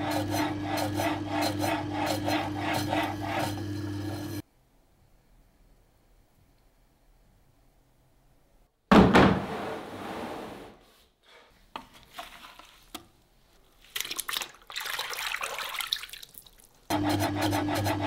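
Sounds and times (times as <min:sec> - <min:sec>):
water splashing in a bucket: 0:13.7 - 0:16.9.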